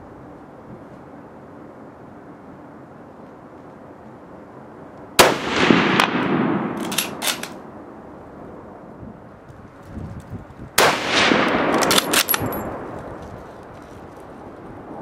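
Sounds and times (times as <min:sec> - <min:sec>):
rifle shots: 0:05.2 - 0:07.6, 0:10.8 - 0:12.8
rifle bolt clicking: 0:06.8 - 0:07.6.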